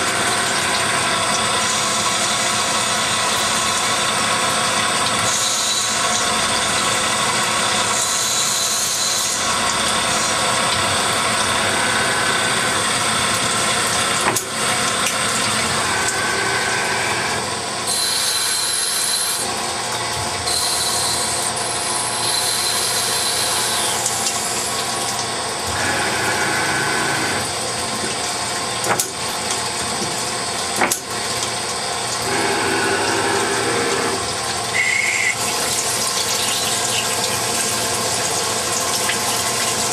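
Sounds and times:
lathe machine noise: 0:00.0 - 0:29.0, 0:31.6 - 0:39.9
high machine whines: 0:05.1 - 0:14.5, 0:15.4 - 0:27.6, 0:31.9 - 0:39.9.

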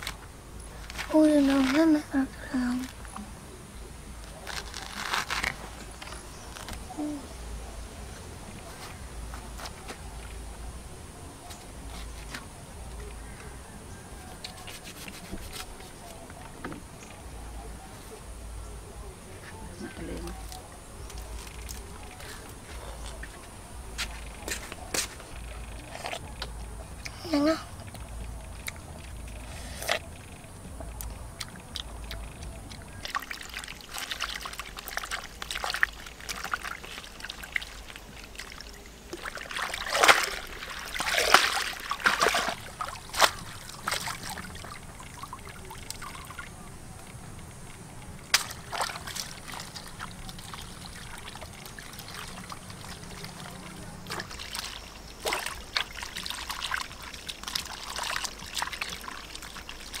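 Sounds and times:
water splashing and dripping: 0:23.1 - 1:00.0.

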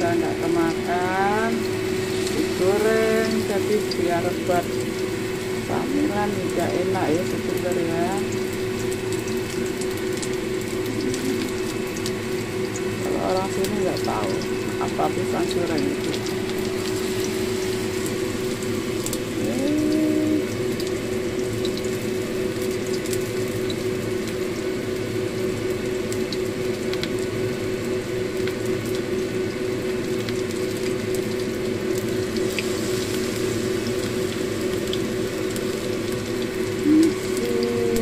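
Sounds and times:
low hum: 0:00.0 - 0:22.7
food sizzling in hot oil: 0:00.0 - 0:38.0.

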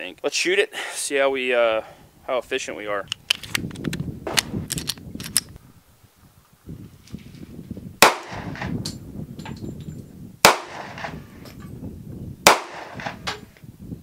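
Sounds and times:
pistol shots with echo: 0:08.0 - 0:08.7, 0:10.4 - 0:11.2, 0:12.4 - 0:13.4.

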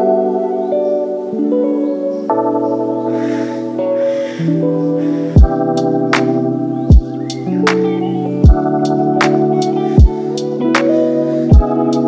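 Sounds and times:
keyboard chords: 0:00.0 - 0:12.0
deep kick drum: 0:05.4 - 0:05.6.

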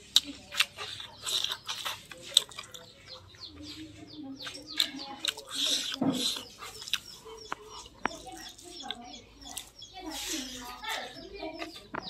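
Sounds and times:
man chewing food: 0:00.0 - 0:12.0.

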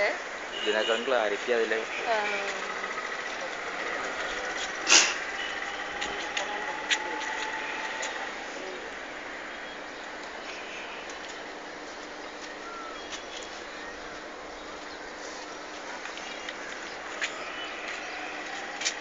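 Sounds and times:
town background noise: 0:00.0 - 0:19.0.

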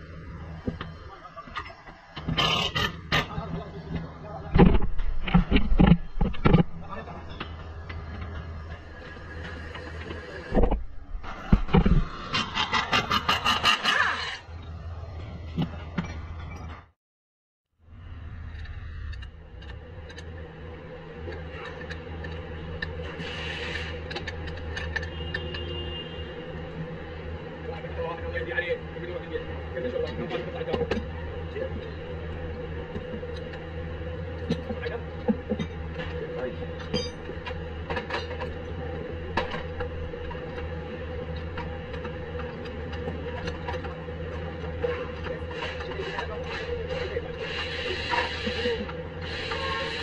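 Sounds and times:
steady low hum: 0:00.0 - 0:13.5, 0:17.8 - 0:50.0
metal scrape: 0:10.6 - 0:14.5.

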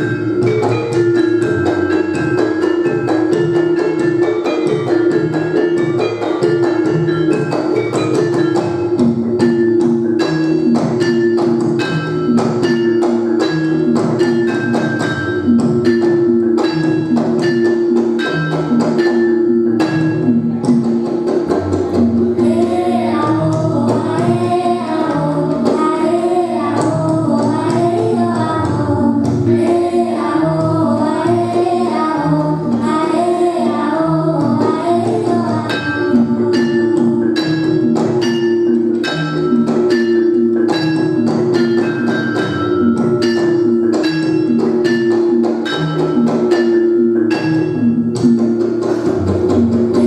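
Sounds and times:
gamelan playing: 0:00.0 - 0:50.0
metallophones quick strikes: 0:00.0 - 0:50.0
girl singing: 0:22.4 - 0:37.2.

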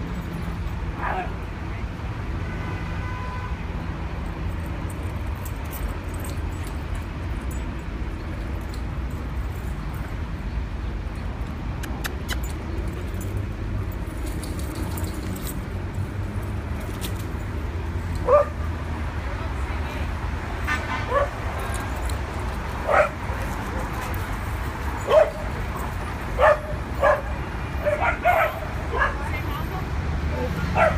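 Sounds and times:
city traffic rumble: 0:00.0 - 0:30.9
dog bark: 0:18.2 - 0:18.6, 0:21.1 - 0:21.4, 0:22.9 - 0:23.2, 0:25.1 - 0:25.4, 0:26.4 - 0:29.2.

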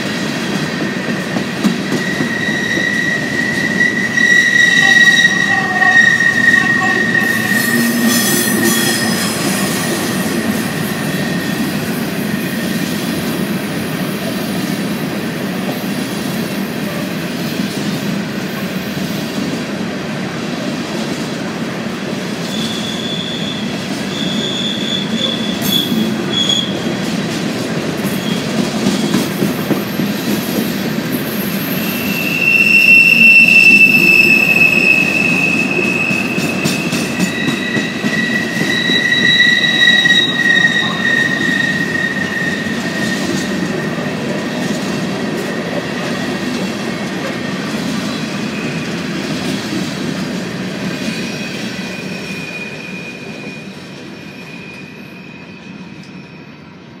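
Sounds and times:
freight train rumbling past: 0:00.0 - 0:57.0
high-pitched wheel squeals: 0:00.8 - 0:12.9, 0:22.5 - 0:26.9, 0:31.3 - 0:44.6, 0:51.0 - 0:56.7.

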